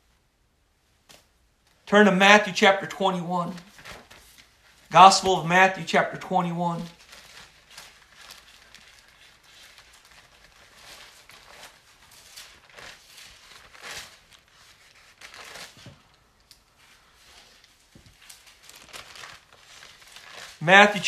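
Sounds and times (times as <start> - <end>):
book pages rustling: 3.4 - 5.4, 6.8 - 21.0.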